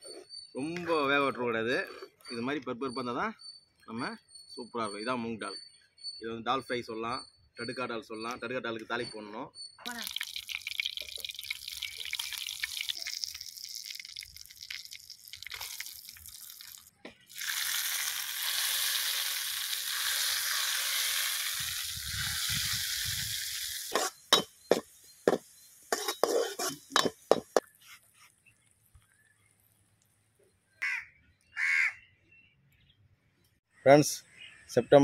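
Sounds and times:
hot oil sizzling: 9.9 - 27.9.

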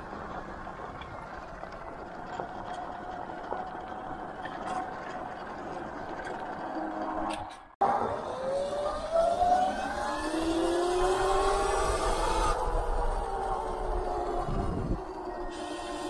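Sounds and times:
electric motor whining: 8.1 - 16.0.

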